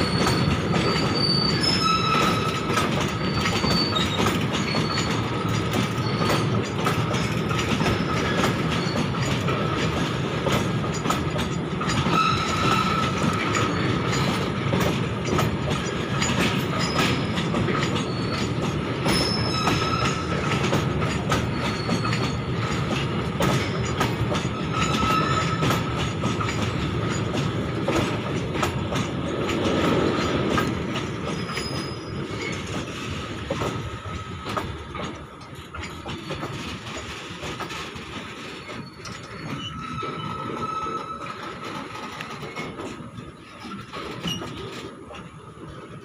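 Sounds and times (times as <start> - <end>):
high wheel squeals: 0.0 - 6.8, 7.8 - 9.6, 11.8 - 14.5, 16.1 - 22.8, 23.6 - 26.5, 31.2 - 33.2, 38.6 - 42.8
train wheels rumbling on track: 0.0 - 46.0.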